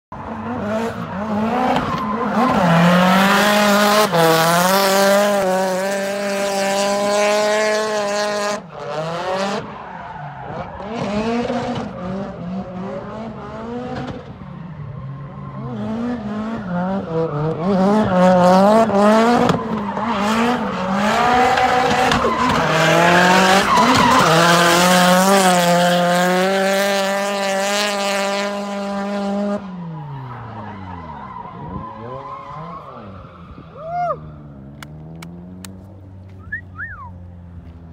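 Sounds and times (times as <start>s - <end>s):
car engine revving high: 15.6s - 29.8s.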